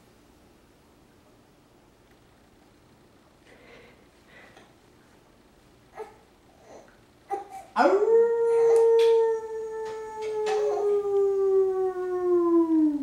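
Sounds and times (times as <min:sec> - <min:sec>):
man imitating wolf howl: 0:07.8 - 0:13.0.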